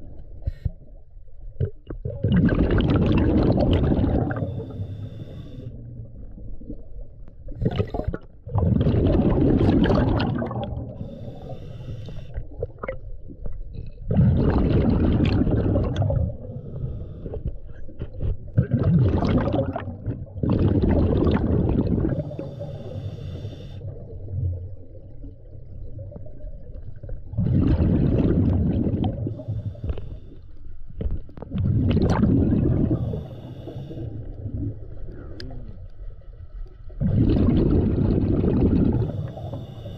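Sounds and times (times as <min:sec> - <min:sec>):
bubbling diver exhalations: 0:02.0 - 0:04.8, 0:07.6 - 0:11.2, 0:14.1 - 0:16.6, 0:18.6 - 0:22.9, 0:27.3 - 0:29.5, 0:31.5 - 0:33.3, 0:37.0 - 0:39.8
hissing inhalations with whistle: 0:04.4 - 0:05.8, 0:11.0 - 0:12.4, 0:22.2 - 0:23.8, 0:32.9 - 0:34.1, 0:39.0 - 0:39.9.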